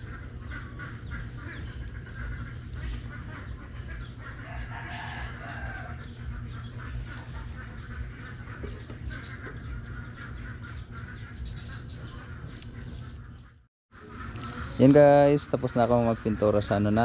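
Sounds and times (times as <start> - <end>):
steady low rumble: 0.0 - 13.5
chickens clucking: 0.0 - 17.0.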